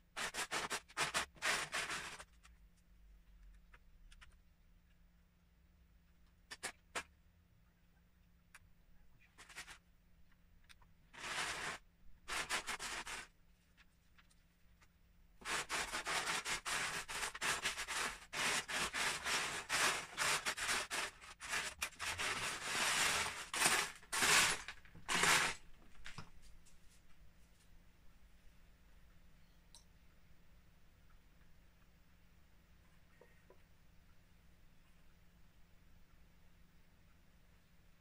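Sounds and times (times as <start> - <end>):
plastic bricks clattering: 15.4 - 25.6.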